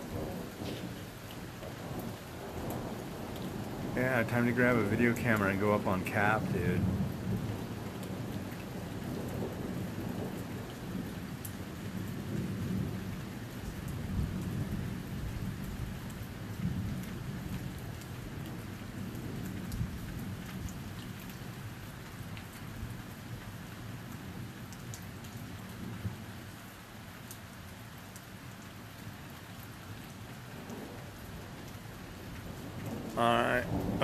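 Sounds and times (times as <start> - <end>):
low rolling thunder: 0.0 - 11.3, 11.9 - 16.0, 32.2 - 34.0
steady rain: 0.0 - 34.0.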